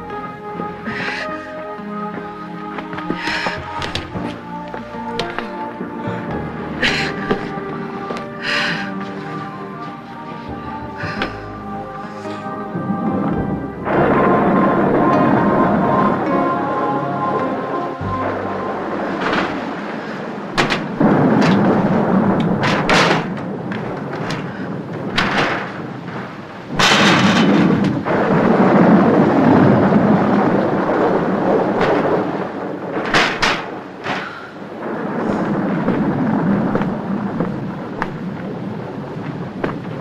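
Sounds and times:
rain rushing with thunder rumble: 0:00.0 - 0:40.0
sharp thunder cracks: 0:12.8 - 0:16.7, 0:18.1 - 0:40.0.

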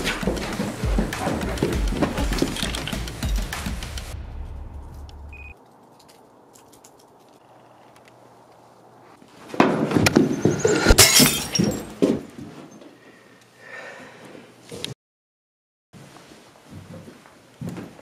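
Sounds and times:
glass breaking and shattering: 0:10.1 - 0:12.0
glass pieces clattering: 0:10.3 - 0:12.0.

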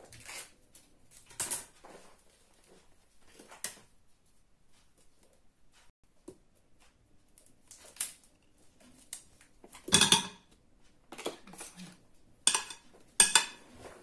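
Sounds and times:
spoon knocking against bowl: 0:09.9 - 0:10.4, 0:12.5 - 0:13.6
metal spoon scraping plastic tub: 0:11.2 - 0:14.0.

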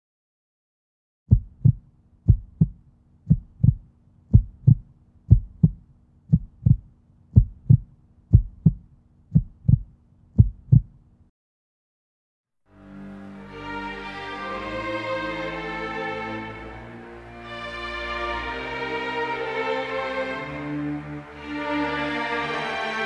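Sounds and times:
heartbeat thumps: 0:01.3 - 0:11.0.

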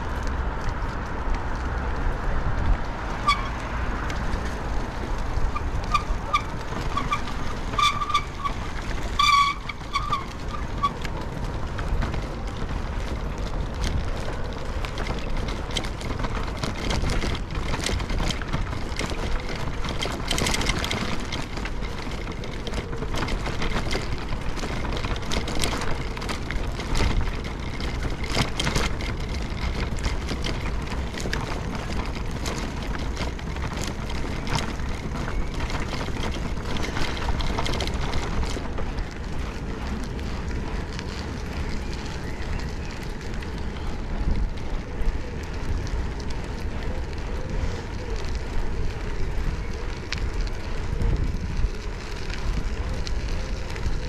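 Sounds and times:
bicycle road rumble: 0:00.0 - 0:54.0
small rattles and clicks: 0:00.0 - 0:54.0
wind on microphone: 0:00.0 - 0:54.0
short high squeaks: 0:05.9 - 0:11.0.

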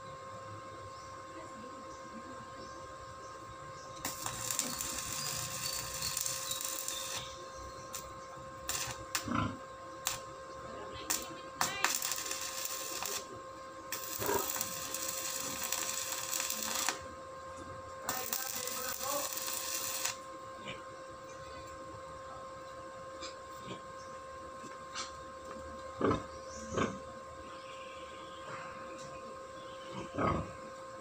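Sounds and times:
steady high hum: 0:00.0 - 0:31.0
arc striking sputters and clicks: 0:03.9 - 0:10.4, 0:11.0 - 0:20.3
arc welder crackling: 0:03.9 - 0:21.8.

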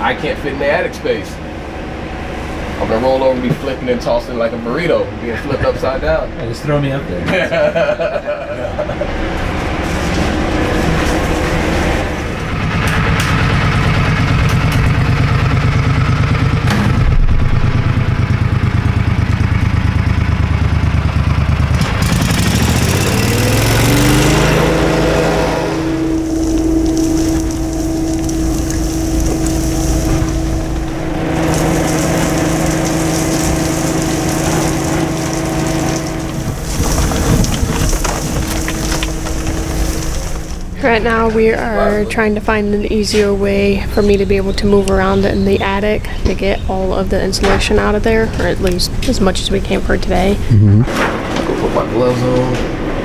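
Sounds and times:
vacuum machine running: 0:06.1 - 0:42.1.

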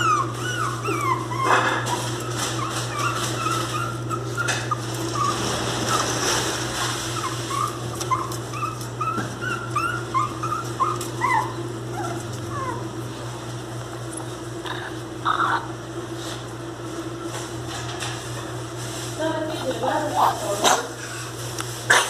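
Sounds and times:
puppies whimpering: 0:00.0 - 0:13.4, 0:14.6 - 0:15.8.

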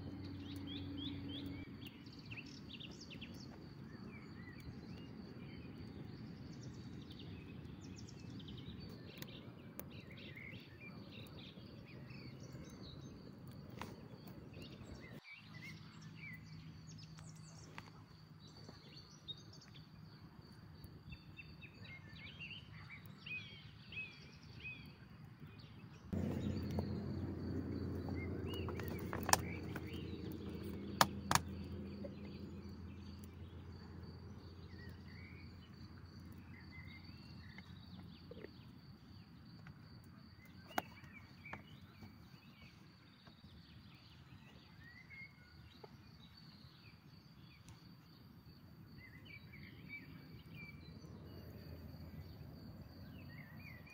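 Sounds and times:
small birds chirping: 0:00.0 - 0:53.9
sharp clicks: 0:26.2 - 0:32.1
low rumble: 0:26.2 - 0:35.9.

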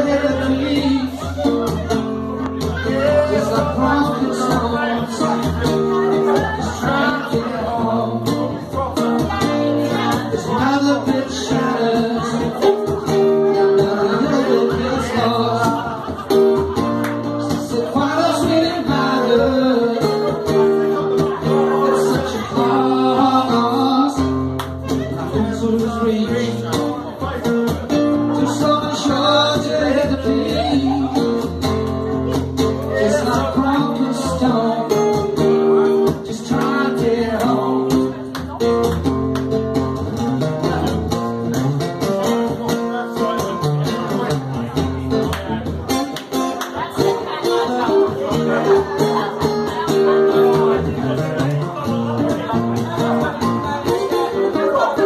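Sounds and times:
acoustic guitar through speaker: 0:00.0 - 0:55.0
man singing: 0:00.0 - 0:55.0.

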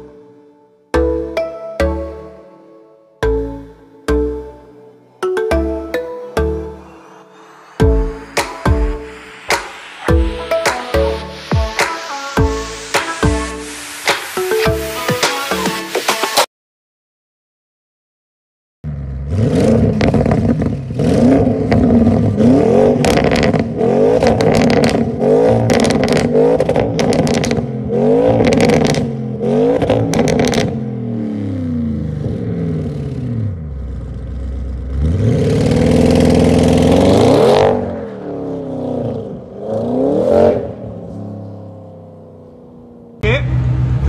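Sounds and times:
car engine revving: 0:06.8 - 0:14.9, 0:18.9 - 0:44.0
exhaust crackles and pops: 0:19.8 - 0:22.2, 0:23.0 - 0:27.7, 0:29.8 - 0:30.8.

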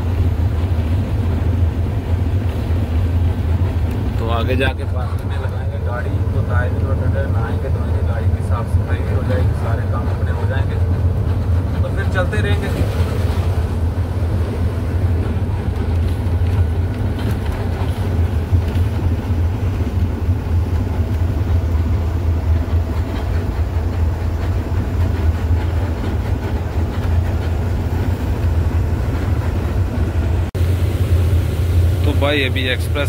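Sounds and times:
diesel truck engine droning: 0:00.0 - 0:33.0
road noise: 0:00.0 - 0:33.0.

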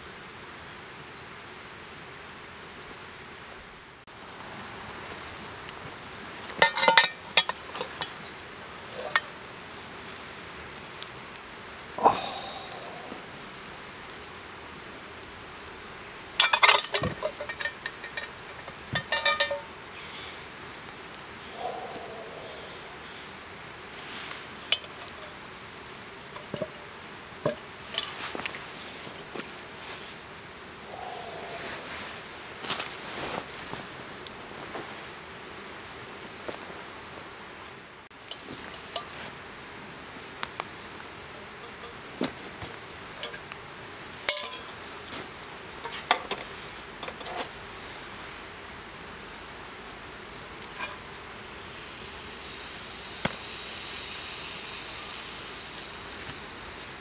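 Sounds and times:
background hiss: 0:00.0 - 0:57.0
metal lid clanking on iron pot: 0:06.6 - 0:08.1, 0:16.4 - 0:18.4, 0:19.0 - 0:19.7, 0:44.3 - 0:44.7.

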